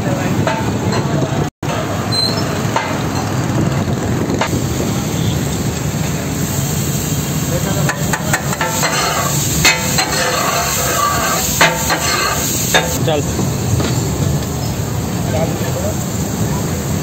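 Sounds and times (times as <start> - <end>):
metal clacks on griddle: 2.7 - 3.4, 7.8 - 13.0
fish sizzling on griddle: 4.5 - 13.2
metal spatula chopping on griddle: 7.9 - 13.0.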